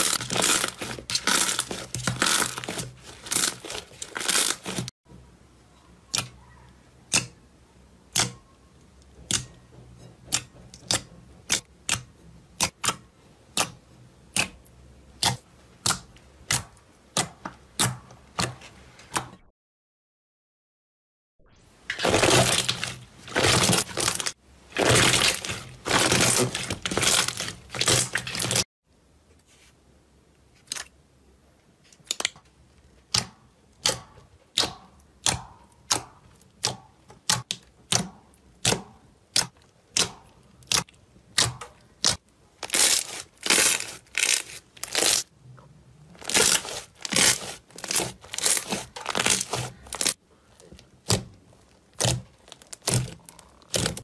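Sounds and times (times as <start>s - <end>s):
hands squishing slime: 0.0s - 4.9s, 22.0s - 28.6s, 33.1s - 45.3s, 46.2s - 54.0s.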